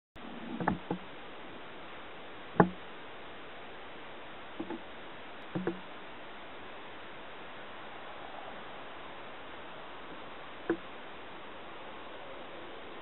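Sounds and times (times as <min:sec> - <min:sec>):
steady hiss: 0:00.2 - 0:13.0
dull knocks and thumps: 0:00.5 - 0:01.1, 0:02.6 - 0:02.8, 0:04.6 - 0:05.9.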